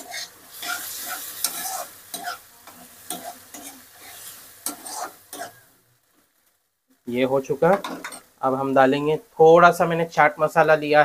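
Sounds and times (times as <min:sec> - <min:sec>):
steel spoon scraping a pan: 0:00.0 - 0:05.6
chickpeas sizzling in a pan: 0:00.0 - 0:11.0.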